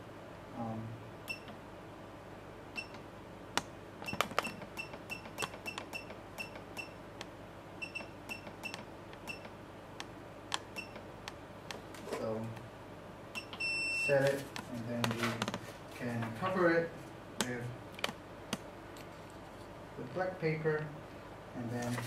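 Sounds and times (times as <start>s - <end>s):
short high keypad beeps: 7.8s - 9.5s, 13.4s - 14.2s.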